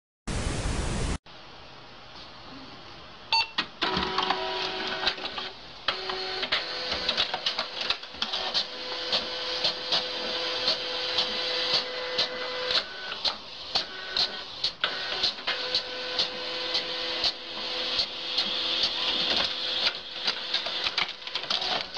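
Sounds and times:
static hiss: 0.3s - 1.2s
printer clacking: 3.8s - 21.9s
printer motor whirring: 3.8s - 21.9s.

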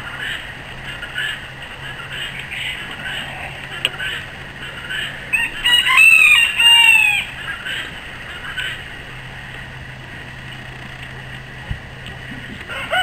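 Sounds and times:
faint low hum: 0.0s - 13.0s
rooster crowing: 5.3s - 7.4s, 12.7s - 13.0s.

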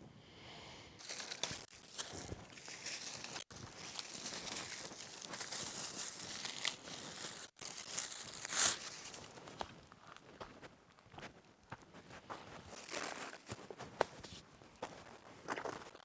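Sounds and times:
branch crunching: 1.0s - 10.2s, 12.7s - 13.7s
dry twigs crackling and rustling: 1.0s - 14.2s.

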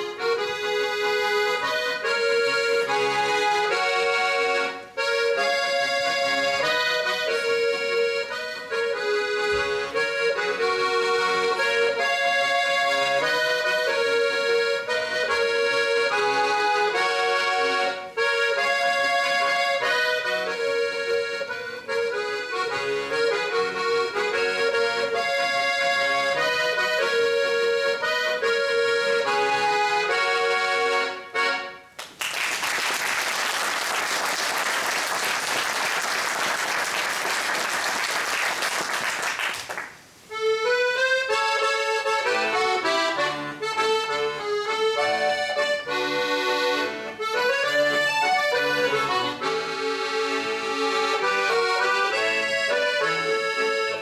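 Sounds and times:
piano accordion playing: 0.0s - 32.0s, 32.8s - 54.0s
audience applause: 32.0s - 40.0s.

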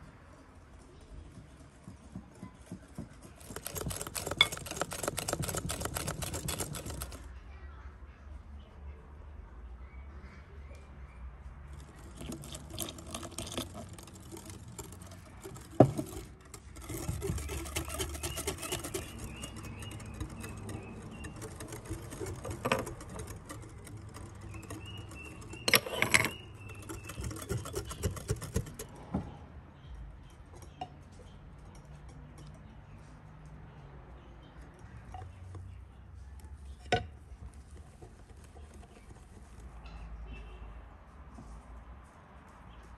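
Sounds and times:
wire whisk clinking in glass bowl: 11.8s - 28.8s.

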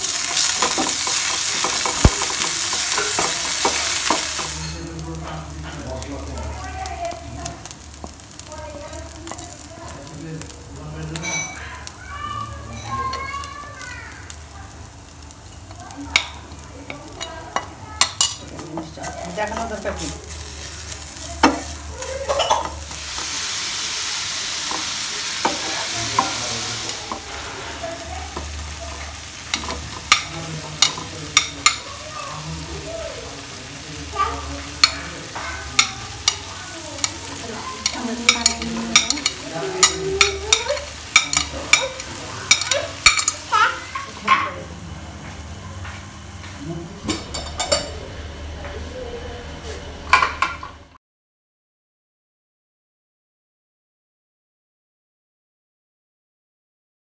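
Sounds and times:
food sizzling in a frying pan: 0.0s - 51.0s
spatula knocking a pan: 0.1s - 4.6s.

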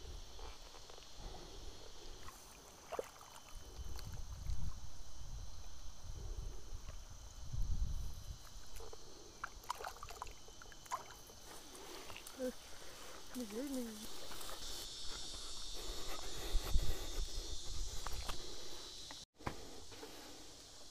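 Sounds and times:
muddy water sloshing: 2.2s - 4.6s, 8.7s - 14.5s.

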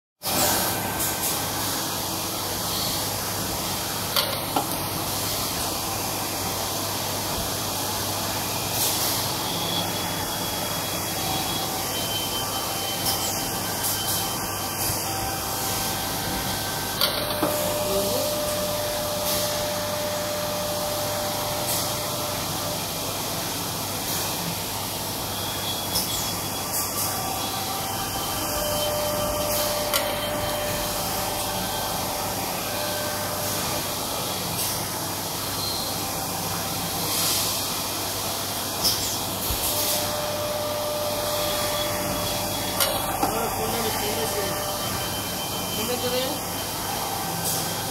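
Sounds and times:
lathe machine hum and hiss: 0.2s - 47.9s
spindle whining tones: 39.9s - 47.9s.

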